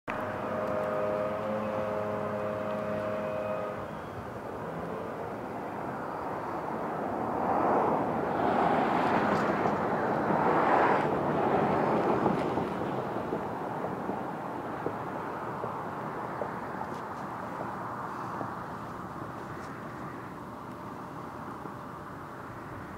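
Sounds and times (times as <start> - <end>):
distant engine hum: 0.1 - 22.9.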